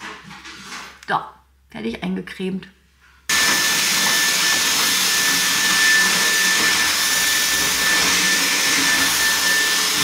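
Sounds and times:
vacuum cleaner running: 0:03.3 - 0:10.0.

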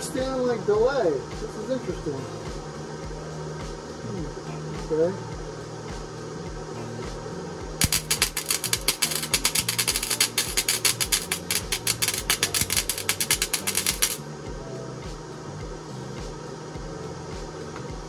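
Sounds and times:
welder arc crackling: 0:07.8 - 0:14.2.

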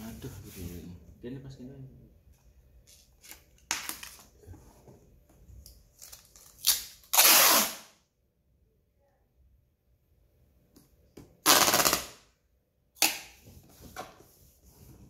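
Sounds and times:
packing tape pulled off roll: 0:05.9 - 0:08.0, 0:11.4 - 0:12.2.

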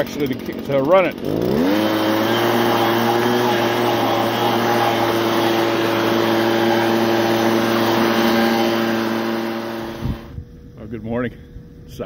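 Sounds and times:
leaf blower engine whine: 0:00.0 - 0:10.5.

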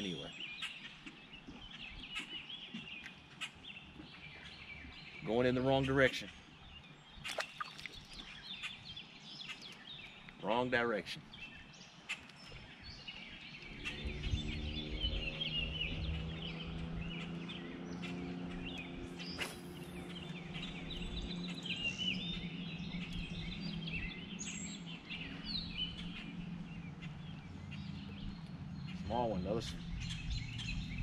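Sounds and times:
songbirds chirping and singing: 0:00.0 - 0:31.0
low motor hum: 0:12.8 - 0:31.0.

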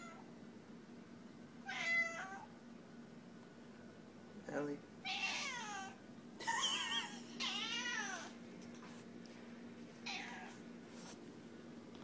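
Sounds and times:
cat meowing: 0:01.6 - 0:02.5, 0:05.0 - 0:06.0, 0:07.4 - 0:08.3, 0:10.0 - 0:10.6.

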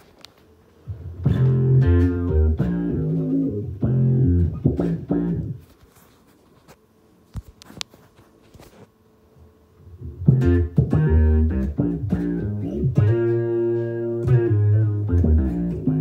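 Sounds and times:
plucked electric bass notes: 0:00.9 - 0:05.6, 0:09.9 - 0:16.0.

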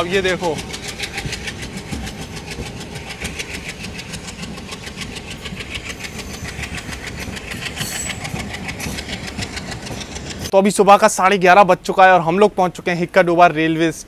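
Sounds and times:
train coaches rolling past: 0:00.0 - 0:11.3
diesel locomotive engine chugging: 0:00.0 - 0:11.4
high squeak: 0:04.0 - 0:10.1.

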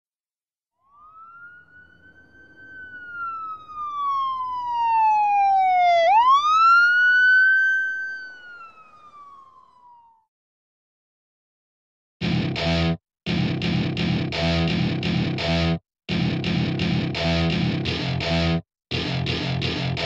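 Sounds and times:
emergency vehicle siren wailing: 0:00.8 - 0:10.3.

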